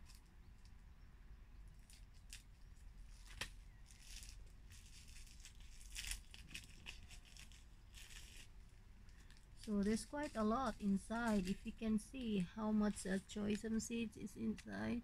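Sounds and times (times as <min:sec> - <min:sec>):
paper packet crinkling: 0:01.8 - 0:15.0
scissors snipping: 0:09.6 - 0:14.7.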